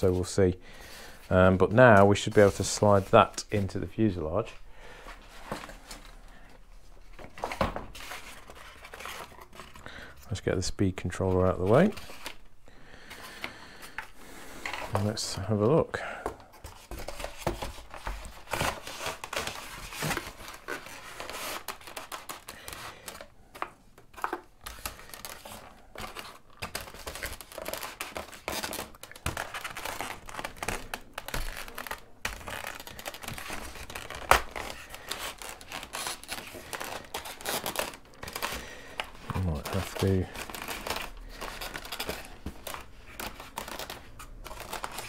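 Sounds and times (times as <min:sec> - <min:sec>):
foam parts rubbing and rustling: 0:16.4 - 0:45.0.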